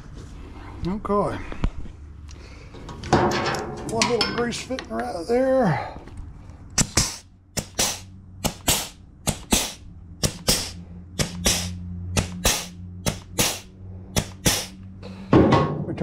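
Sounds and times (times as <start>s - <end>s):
air grease gun pops and hisses: 6.8s - 14.8s.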